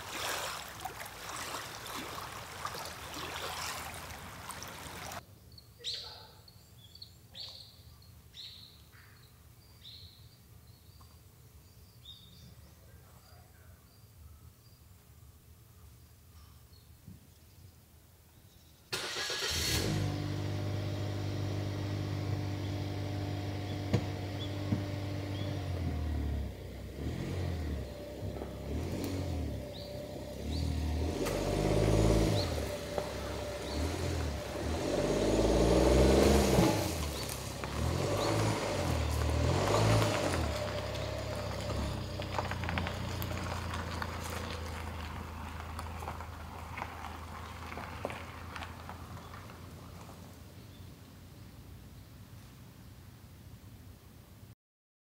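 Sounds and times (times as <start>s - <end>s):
car engine idling and revving: 19.0s - 50.3s.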